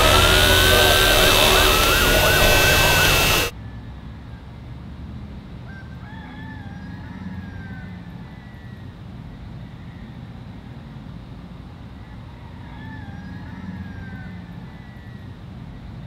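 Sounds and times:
faint wavering call: 0.0s - 3.5s
low engine hum: 0.0s - 3.5s
machinery with squealing tone: 0.0s - 3.5s.

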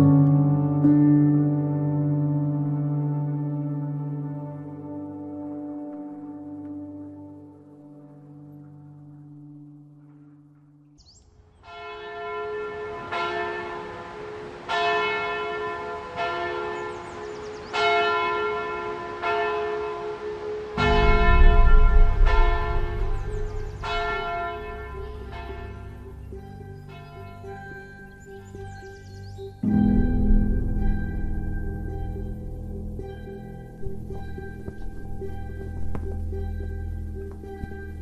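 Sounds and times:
church bell ringing: 11.6s - 38.0s
low rumble: 20.8s - 38.0s.

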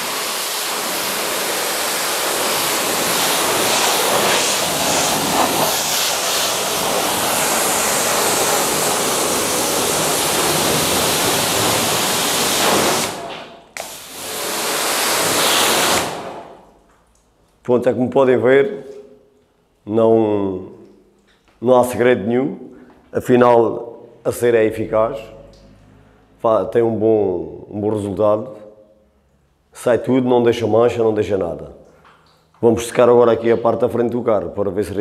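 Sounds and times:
pressure washer jet hissing: 0.0s - 16.6s.

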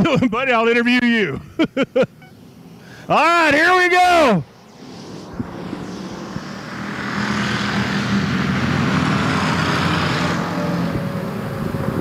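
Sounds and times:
stock car engines racing: 2.0s - 12.0s.

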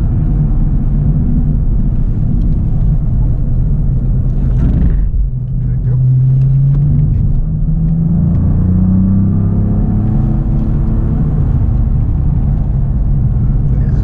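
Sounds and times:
car engine accelerating hard: 0.0s - 14.0s.

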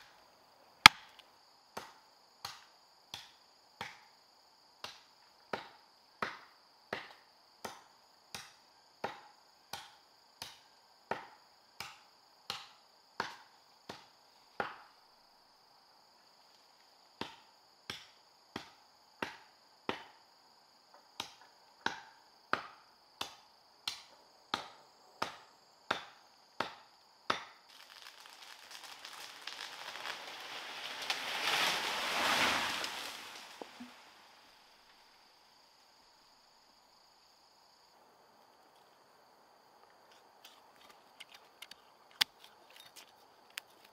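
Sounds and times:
high insect drone: 0.0s - 43.9s.

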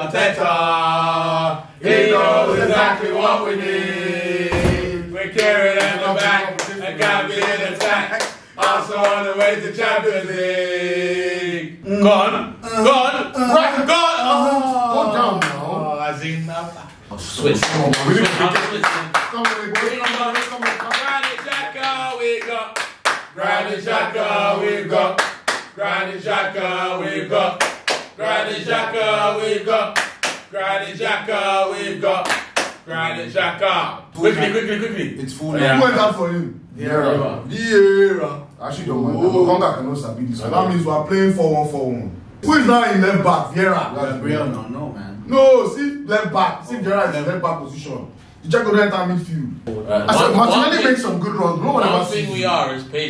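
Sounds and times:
men chanting a football song: 0.0s - 15.7s, 19.7s - 34.9s
hand claps: 5.4s - 9.6s, 17.6s - 23.3s, 25.2s - 25.8s, 27.6s - 28.2s, 30.0s - 30.5s, 32.2s - 32.8s.

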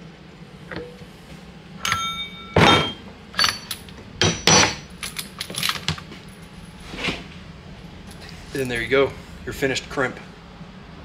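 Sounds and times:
metal clanks and clinks: 1.8s - 6.5s
heavy metal knocks: 1.9s - 4.9s.

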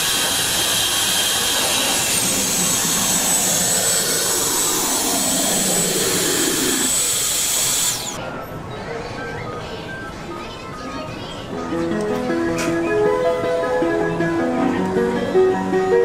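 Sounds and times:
loud blower-like rushing: 0.0s - 8.2s
thin high whine: 0.0s - 8.2s.

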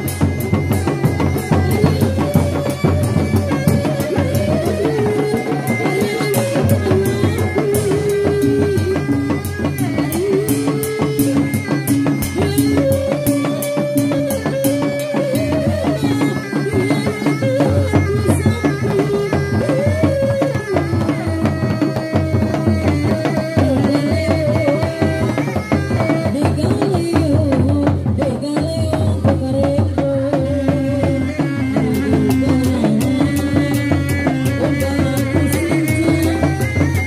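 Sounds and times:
wavering held-note melody: 0.0s - 26.1s
drums in fast interlocking rhythm: 0.0s - 37.0s.

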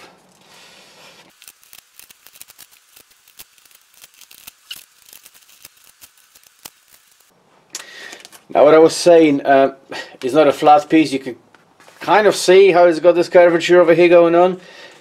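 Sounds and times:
scissors snipping tape: 1.3s - 7.2s.

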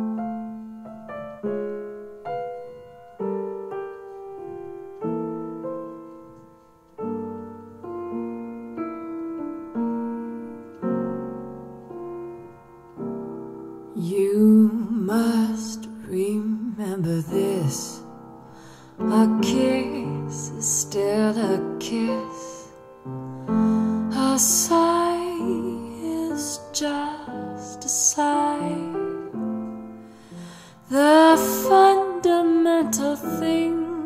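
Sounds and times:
slow gentle piano melody: 0.0s - 34.0s
person singing: 14.0s - 18.1s, 19.0s - 22.8s, 30.8s - 34.0s.

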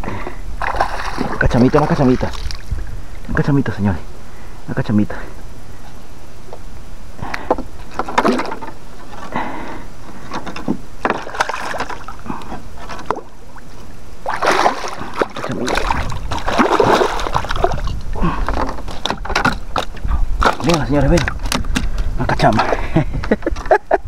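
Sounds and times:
water splashing and sloshing: 0.0s - 3.3s, 7.5s - 9.5s, 10.1s - 24.0s
low rumble: 12.1s - 20.4s.

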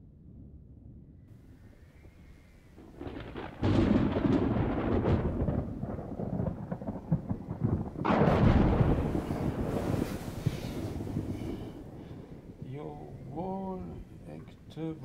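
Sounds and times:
thunder rolling: 0.3s - 15.0s.

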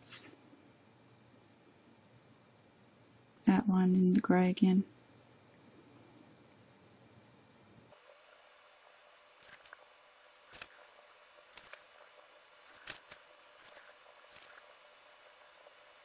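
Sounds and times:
marker nib scratching on cardstock: 11.5s - 14.7s.

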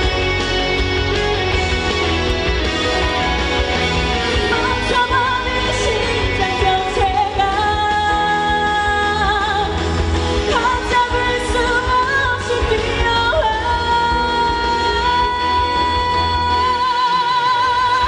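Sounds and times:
band playing with heavy bass: 0.0s - 18.0s
woman singing into microphone: 4.3s - 18.0s.

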